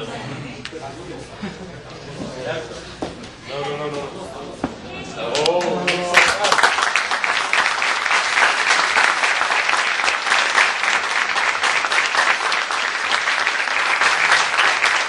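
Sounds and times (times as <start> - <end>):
audience applauding: 5.3 - 15.0.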